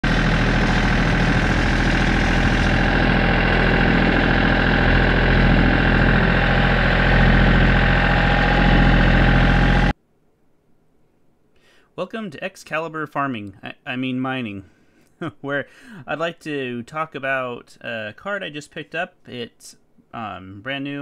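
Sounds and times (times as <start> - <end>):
tractor engine running: 0.0 - 9.9.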